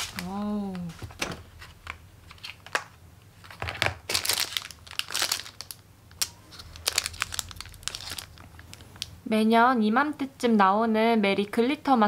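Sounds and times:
packaging crinkling and rustling: 0:00.0 - 0:09.2.

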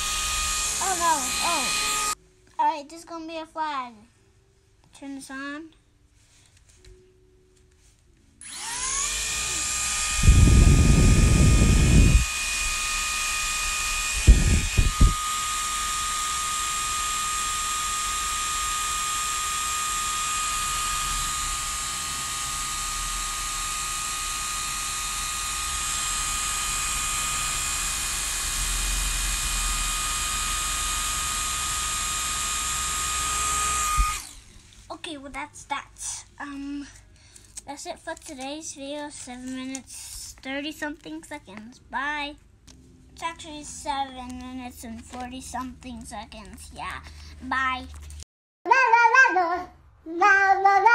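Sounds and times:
toy propeller motor whine: 0:00.0 - 0:02.2, 0:08.4 - 0:34.6
loud low rumble: 0:10.2 - 0:12.2.

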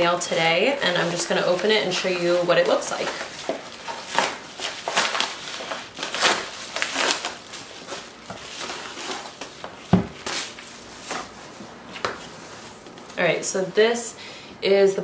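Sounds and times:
paper mailer tearing and rustling: 0:00.0 - 0:09.6.

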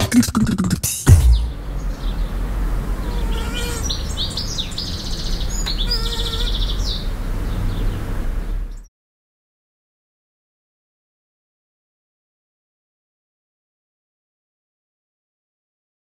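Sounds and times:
birds chirping and trilling: 0:00.6 - 0:08.9
low steady rumble: 0:01.1 - 0:05.5
mosquito buzzing whine: 0:02.8 - 0:04.0, 0:05.7 - 0:06.7.

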